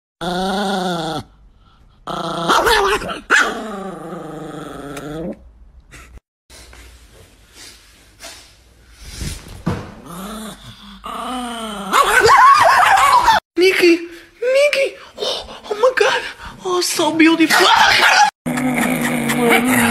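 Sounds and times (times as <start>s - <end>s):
dog growling: 2.0s - 5.4s, 10.0s - 12.0s, 18.5s - 19.9s
dog barking: 17.6s - 18.3s.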